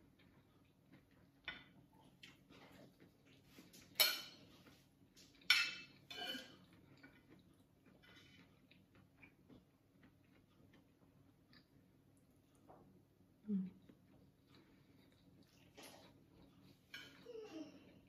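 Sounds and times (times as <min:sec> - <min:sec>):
spoon clinking on ceramic plate: 0:05.5 - 0:06.5.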